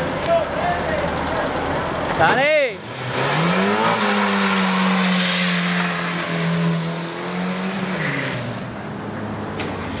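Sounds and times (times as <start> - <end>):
car engine revving: 1.0 - 10.0.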